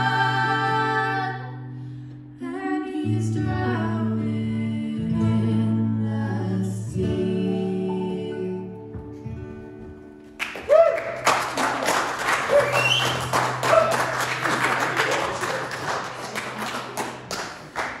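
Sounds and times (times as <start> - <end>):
audience applause: 10.4 - 18.0
whoops and cheers: 10.5 - 11.7, 12.4 - 14.2.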